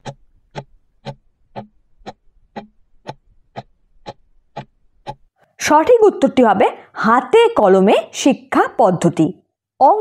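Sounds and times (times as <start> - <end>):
clock ticking: 0.0 - 5.3.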